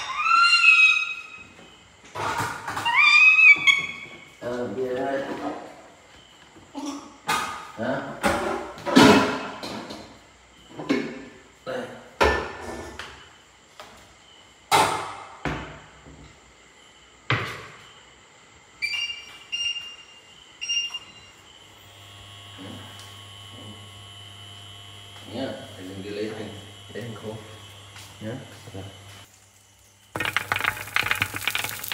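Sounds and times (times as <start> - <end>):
cupboard doors and cookware clattering: 1.5 - 4.2, 6.8 - 10.1
cooktop low hum and whine: 7.1 - 31.9
cooktop beeps: 30.2 - 31.9.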